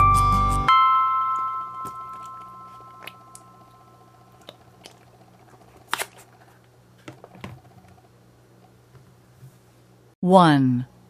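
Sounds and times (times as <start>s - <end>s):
background music note ringing: 0.0s - 4.4s
slime squishing: 2.1s - 6.6s.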